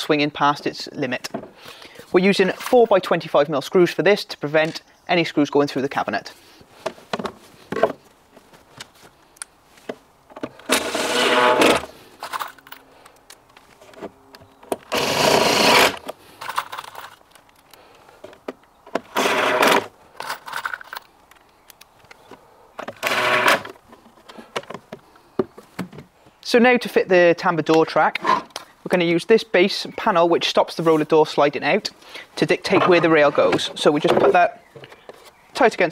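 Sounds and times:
cordless drill driving screws: 0:10.6 - 0:11.9, 0:14.8 - 0:16.0, 0:19.1 - 0:19.9, 0:22.9 - 0:23.8
small clicks and knocks: 0:16.0 - 0:19.1.

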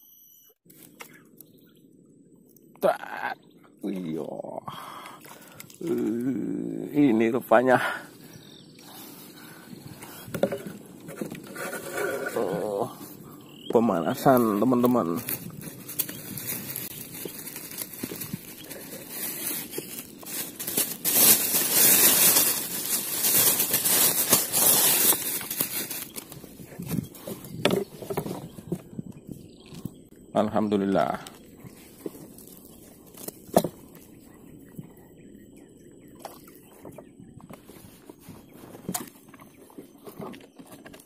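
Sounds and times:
clothing rustling on microphone: 0:14.2 - 0:30.0, 0:36.6 - 0:41.0
plastic bag rustling: 0:14.6 - 0:28.6
faint chirps: 0:25.9 - 0:40.8.

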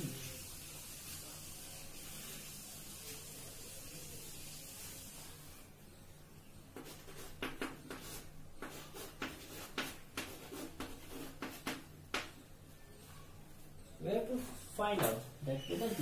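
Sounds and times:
chalk tapping and scraping on blackboard: 0:06.7 - 0:12.4.

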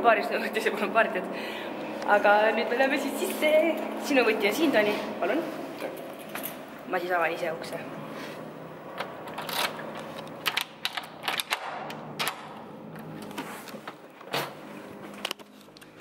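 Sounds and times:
door latch and handle: 0:10.4 - 0:12.6.

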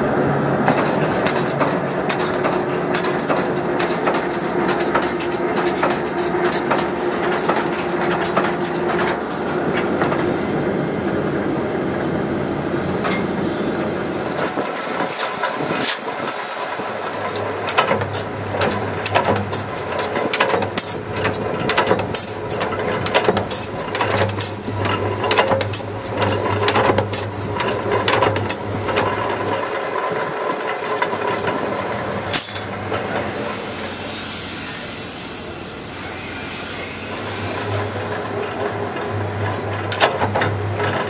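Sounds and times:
machine humming: 0:00.0 - 0:41.0
power press clanking: 0:00.6 - 0:10.4, 0:14.3 - 0:34.2, 0:36.4 - 0:41.0
hiss: 0:33.3 - 0:37.9.

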